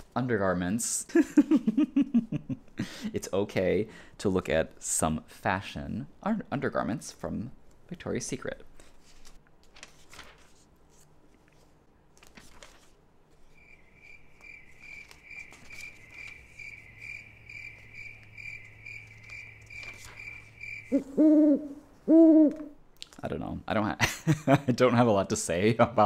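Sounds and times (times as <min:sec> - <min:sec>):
magazine pages turning: 0:08.7 - 0:13.6, 0:14.6 - 0:16.7, 0:17.8 - 0:20.6.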